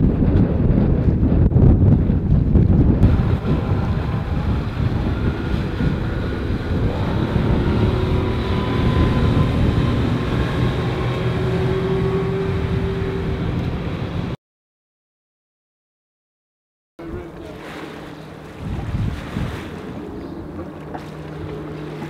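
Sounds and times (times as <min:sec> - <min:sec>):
outboard motor running: 0:00.0 - 0:14.4, 0:17.0 - 0:22.0
rush of wind: 0:00.0 - 0:14.4, 0:17.0 - 0:22.0
rushing water: 0:03.0 - 0:14.4, 0:17.0 - 0:22.0.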